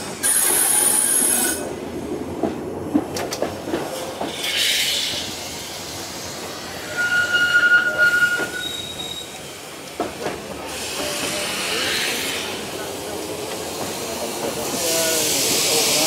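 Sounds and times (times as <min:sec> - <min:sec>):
electric tram running: 0:00.0 - 0:16.0
wheels squealing: 0:06.7 - 0:09.5.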